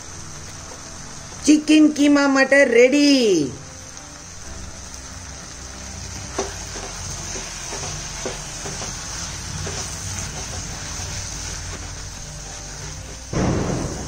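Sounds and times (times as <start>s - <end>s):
food sizzling in a pan: 0.0s - 14.0s
wooden spatula scraping a pan: 6.3s - 13.3s.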